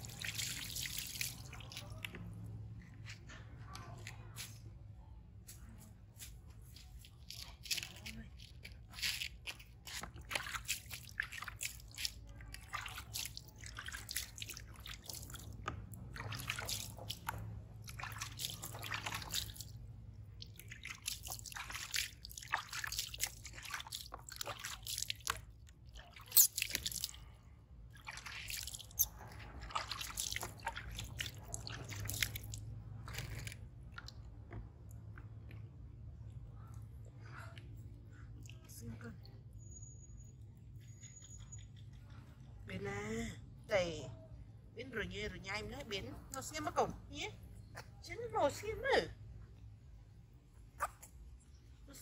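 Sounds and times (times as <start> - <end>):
water running onto concrete: 0.0 - 2.6, 6.2 - 27.3, 28.1 - 34.1
water splashing and dripping: 0.0 - 4.6, 6.2 - 35.5.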